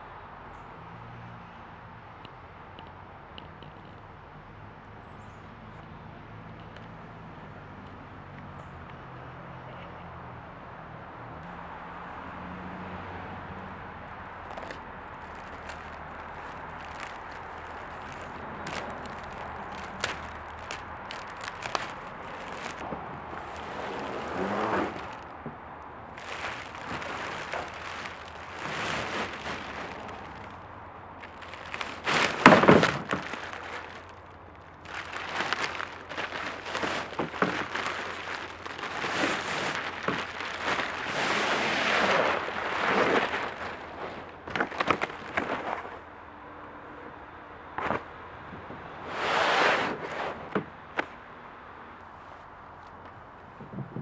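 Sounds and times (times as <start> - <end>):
plastic wrap crinkling and ripping: 14.4 - 25.4, 26.1 - 45.9
cardboard sliding and rustling: 23.4 - 25.3, 26.2 - 30.5, 31.3 - 34.1, 34.9 - 46.0, 49.0 - 51.1.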